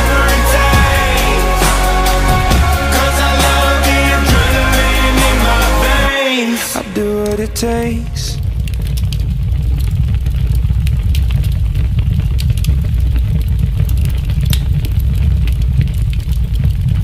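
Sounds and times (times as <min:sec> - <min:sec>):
loud low rumble: 0:00.0 - 0:12.1.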